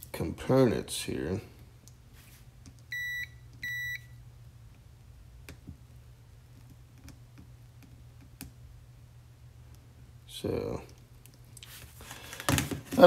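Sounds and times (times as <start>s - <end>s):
multimeter short beeps: 2.9s - 4.1s.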